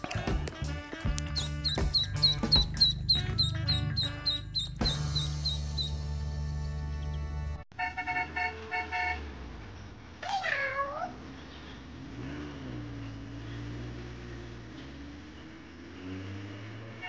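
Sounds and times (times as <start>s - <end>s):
short horn beeps: 0.6s - 5.9s
low engine-like hum: 1.3s - 7.5s
meow-like animal cry: 10.2s - 11.2s.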